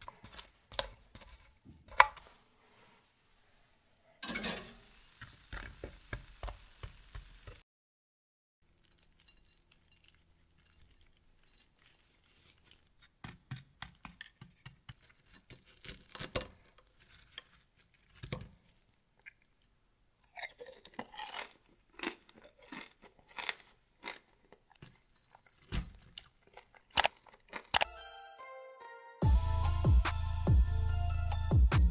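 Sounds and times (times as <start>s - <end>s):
crispy potatoes crunching: 8.6s - 27.9s.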